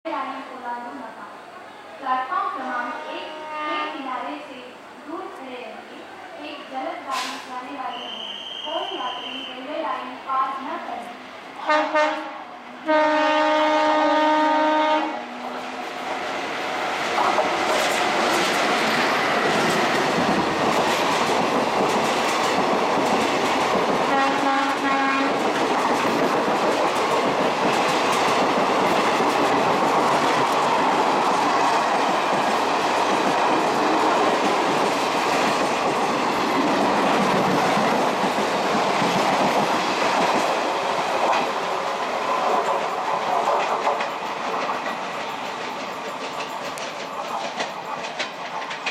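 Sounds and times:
train horn: 2.6 - 4.0, 11.6 - 16.0, 24.1 - 25.4
train wheels rushing on rails: 6.7 - 48.9.

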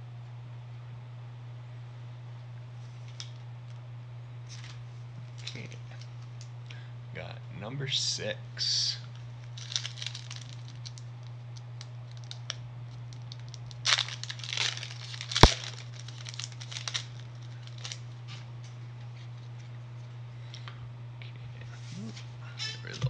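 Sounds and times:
steady low hum: 0.0 - 23.0
foil wrapper crinkling: 9.4 - 18.1
sharp snap: 15.4 - 15.6.

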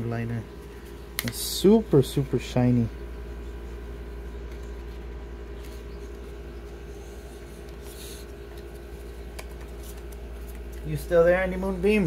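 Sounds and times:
steady low hum: 0.0 - 12.0
trading cards handled: 4.3 - 6.8, 7.6 - 11.0.

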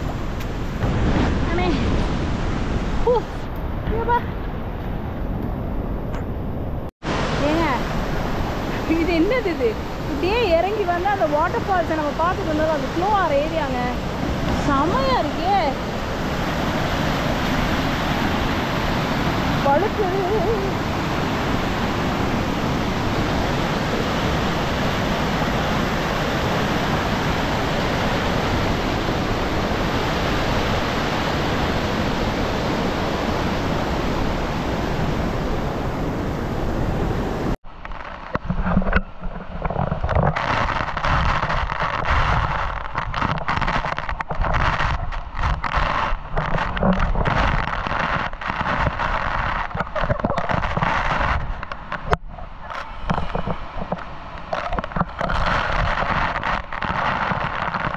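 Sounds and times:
waterfall roaring: 7.0 - 37.6, 45.4 - 57.9
crackles and knocks: 37.6 - 57.9.

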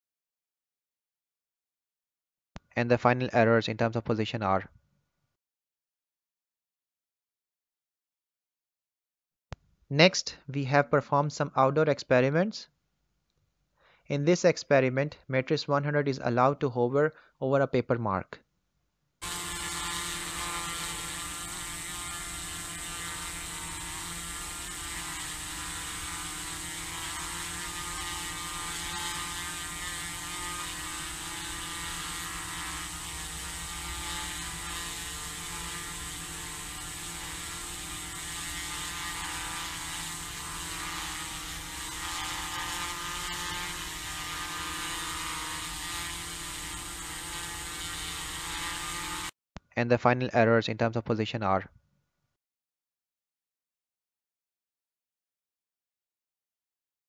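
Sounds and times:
drone rotors buzzing: 19.2 - 49.3.

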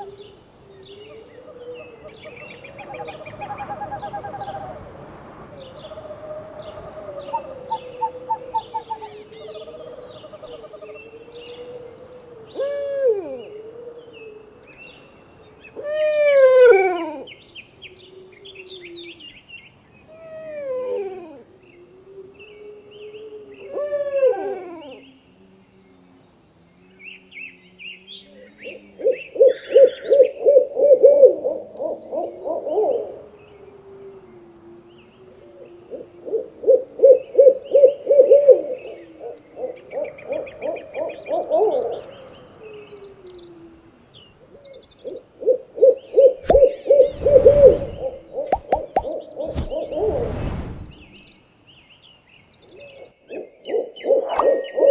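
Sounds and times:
owls hooting: 5.6 - 14.9, 15.6 - 19.2, 20.1 - 25.2, 27.5 - 50.3
higher chirps: 54.4 - 54.9.

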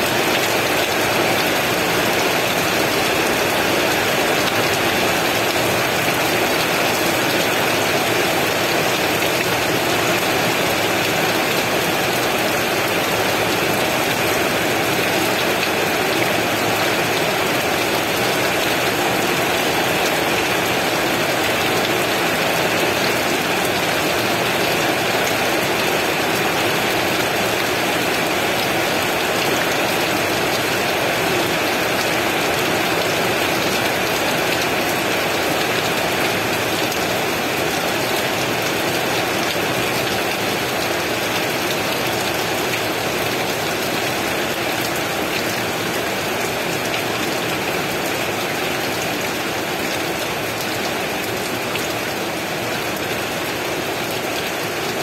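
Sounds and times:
heavy rain pouring: 0.0 - 55.0.

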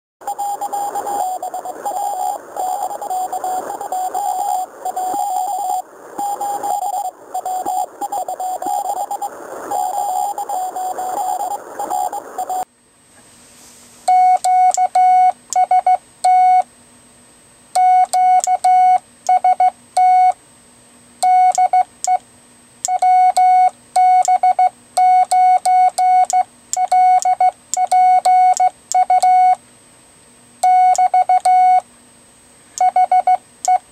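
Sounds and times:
morse code sidetone beeps: 0.2 - 12.6, 14.1 - 16.6, 17.8 - 20.4, 21.2 - 22.2, 22.9 - 29.6, 30.6 - 31.8, 32.8 - 33.8
morse code tone: 0.2 - 12.6, 14.1 - 16.6
steady hiss: 13.0 - 14.3.

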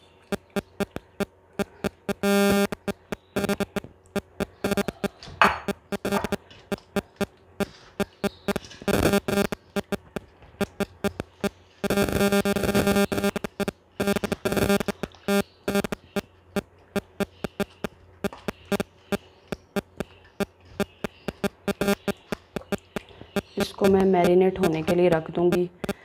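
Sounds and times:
clicking beat: 0.4 - 5.0, 5.7 - 16.3, 19.5 - 25.0
synthesizer chords: 0.4 - 5.1, 5.7 - 7.2, 8.0 - 16.1
electronic music: 1.8 - 3.8, 5.7 - 7.2.

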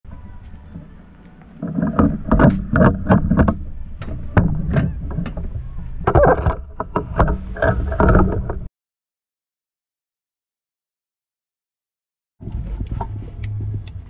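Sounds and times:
handling knocks and rustling: 0.1 - 8.7
steady low hum: 0.1 - 8.7, 12.4 - 14.0.

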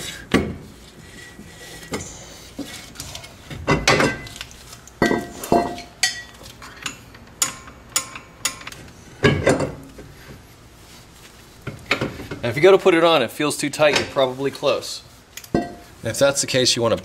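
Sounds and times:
metal clanks and knocks: 3.5 - 4.3, 7.4 - 9.9.

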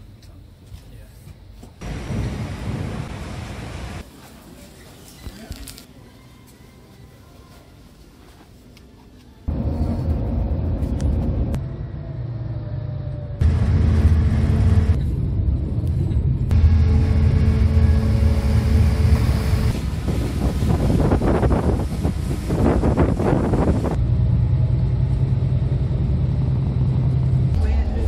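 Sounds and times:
ferry engines rumbling: 9.2 - 28.0.

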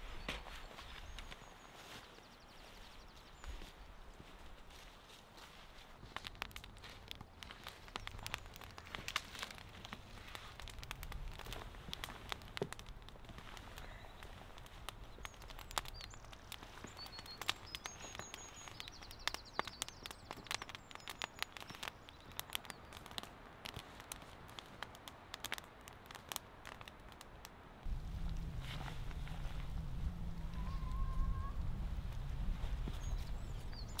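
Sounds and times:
cooking fire crackling and popping: 3.0 - 34.0
low steady rumble: 27.8 - 33.7
high bird chirps: 30.6 - 31.6.

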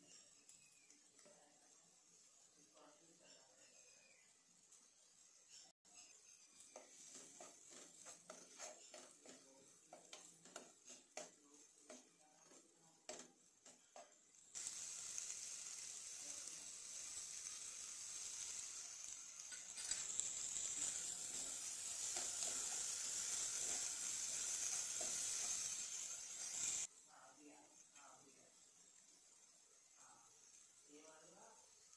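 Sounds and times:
potatoes sizzling in oil: 0.0 - 31.9
spoon scraping and tapping pan: 5.5 - 14.3, 19.5 - 26.8.

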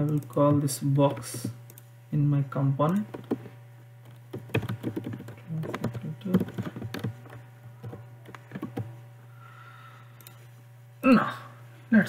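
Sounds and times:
steady low hum: 0.0 - 12.0
keyboard keys clicking: 2.8 - 8.9.

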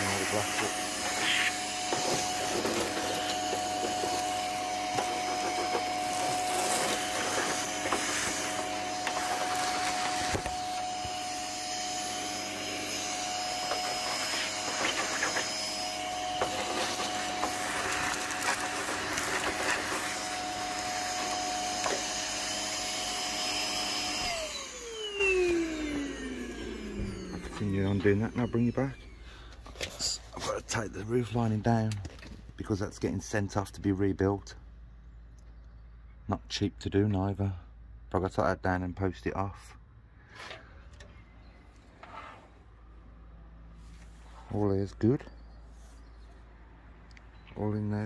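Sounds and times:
vacuum cleaner running: 0.0 - 29.6.

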